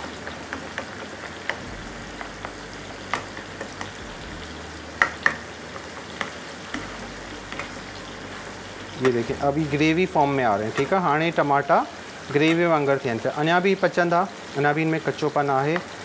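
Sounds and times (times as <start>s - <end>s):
food sizzling in a wok: 0.0s - 16.0s.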